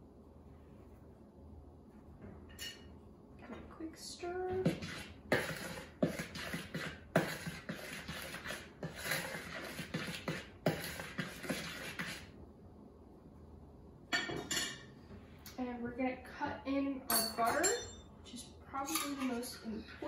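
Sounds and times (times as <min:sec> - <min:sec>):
utensil scraping in plastic bowl: 0:04.5 - 0:12.3
utensil tapping bowl: 0:04.6 - 0:12.2.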